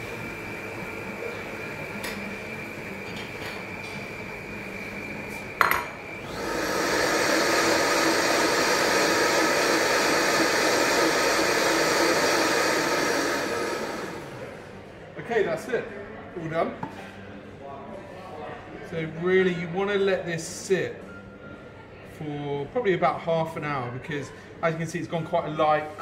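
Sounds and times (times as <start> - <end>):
blender whirring: 0.0 - 14.7.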